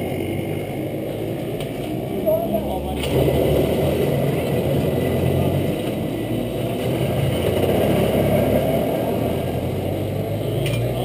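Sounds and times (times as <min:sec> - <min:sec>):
kart engine idling: 0:00.0 - 0:11.0.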